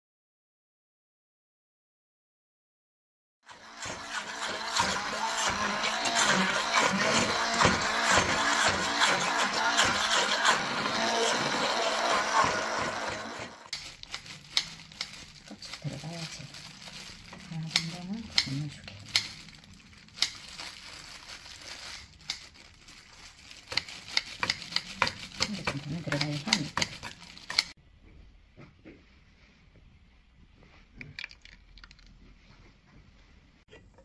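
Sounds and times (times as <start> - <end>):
hand blender whirring: 3.5 - 13.8, 23.6 - 27.8.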